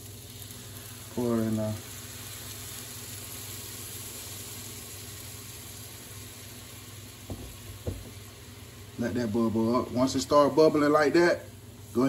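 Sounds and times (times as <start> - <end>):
cream sizzling and bubbling in pan: 0.0 - 12.0
short knock: 7.3 - 8.2.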